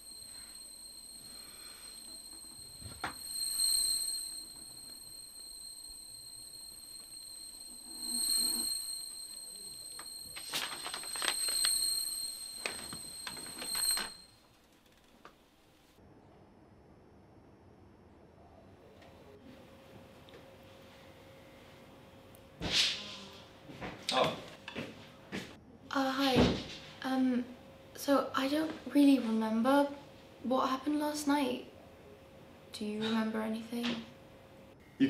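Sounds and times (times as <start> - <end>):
high-pitched electronic ringing tone: 0.0 - 14.4.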